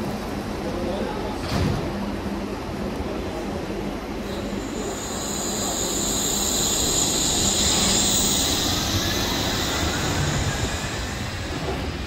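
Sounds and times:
monorail rumble: 0.0s - 12.0s
monorail wheels whining: 4.2s - 12.0s.

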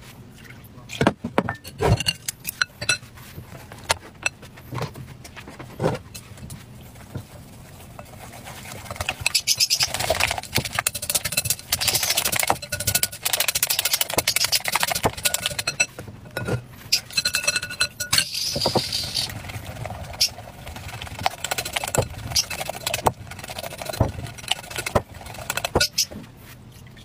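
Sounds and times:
whisk clinking in glass bowl: 8.0s - 19.3s, 21.2s - 26.0s.

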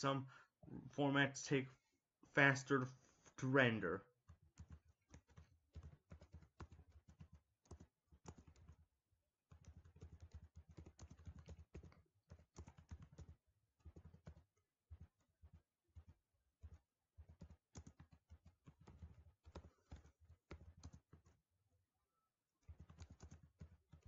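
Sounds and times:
typing on computer keyboard: 4.2s - 8.9s, 9.5s - 21.4s, 22.6s - 24.0s.

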